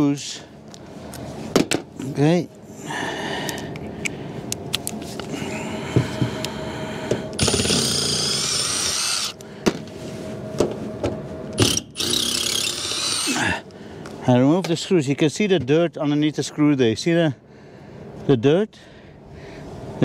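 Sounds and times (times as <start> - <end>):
impact driver running: 7.4 - 9.4, 11.6 - 13.5.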